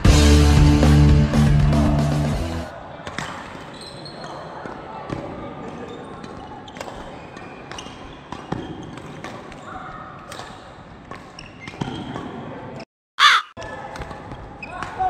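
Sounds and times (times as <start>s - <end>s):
rackets hitting shuttlecock: 3.0s - 12.4s, 13.6s - 15.0s.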